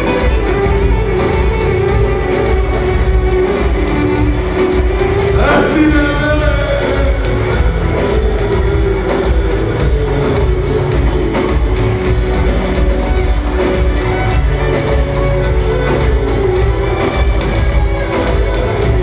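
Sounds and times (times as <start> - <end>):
band playing through a pa: 0.0 - 19.0
heavy steady low beat: 0.0 - 19.0.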